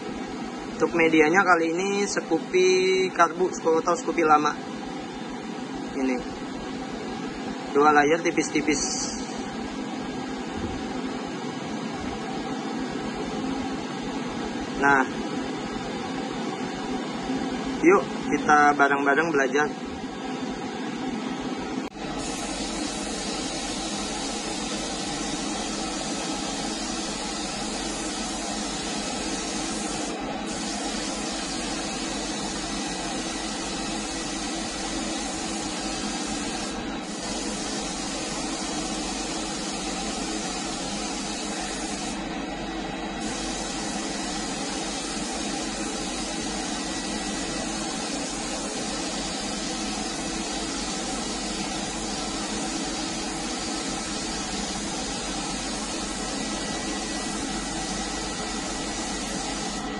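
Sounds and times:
steady hum: 0:00.0 - 0:59.9
spray gun hissing: 0:22.1 - 0:42.2, 0:43.2 - 0:59.9.

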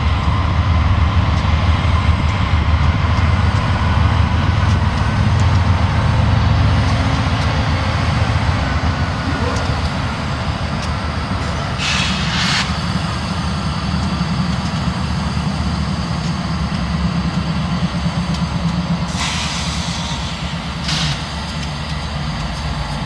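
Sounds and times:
diesel locomotive engine drone: 0:00.0 - 0:23.0
compressed air hissing: 0:11.8 - 0:12.8, 0:19.1 - 0:21.2.

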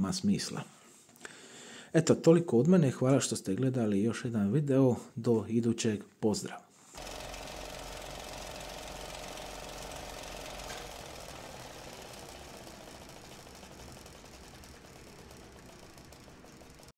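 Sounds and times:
steady mechanical noise: 0:07.0 - 0:16.9.

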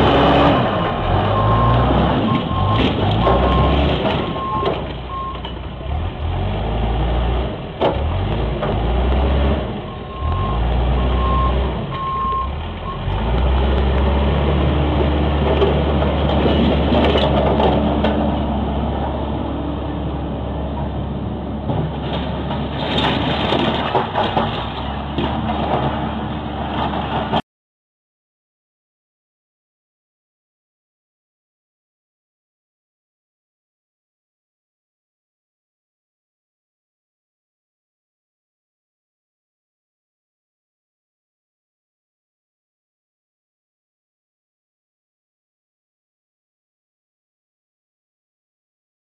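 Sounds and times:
backhoe engine running: 0:00.0 - 0:27.4
reversing alarm beeping: 0:09.9 - 0:13.1.

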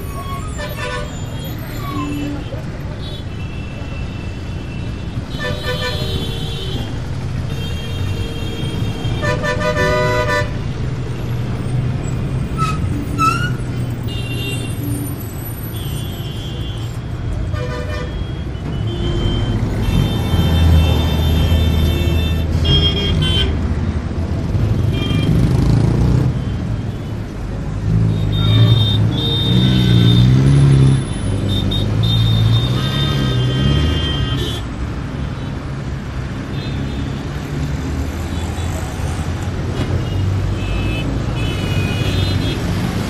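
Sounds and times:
car horns tooting: 0:00.0 - 0:10.6, 0:28.0 - 0:34.7
traffic passing: 0:00.0 - 0:43.0.

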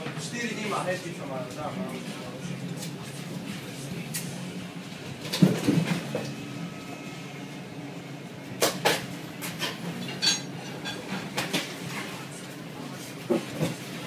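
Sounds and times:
steady low hum: 0:00.0 - 0:14.0
dishes and utensils clinking: 0:08.6 - 0:12.1.

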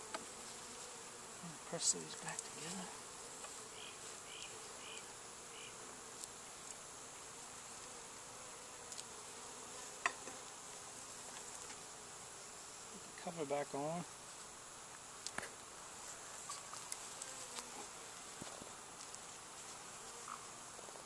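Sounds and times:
bees buzzing: 0:00.0 - 0:21.0.

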